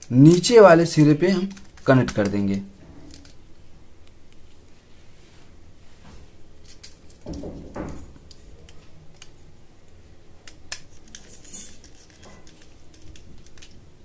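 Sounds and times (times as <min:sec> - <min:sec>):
screwdriver clicking and scraping: 0:10.4 - 0:13.8.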